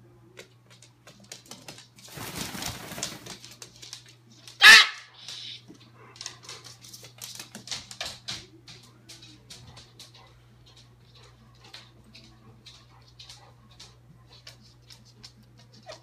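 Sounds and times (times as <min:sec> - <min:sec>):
rustling flurry: 0:01.2 - 0:04.6.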